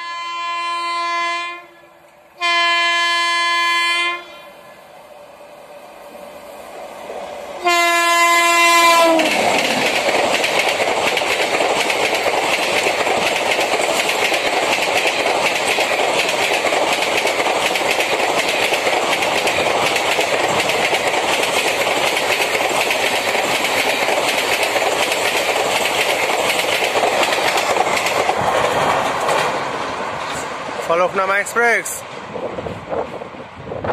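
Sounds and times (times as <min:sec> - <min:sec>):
locomotive horn blast: 0:00.0 - 0:04.7, 0:07.6 - 0:09.4
train wheels on rails rushing past: 0:00.9 - 0:33.9.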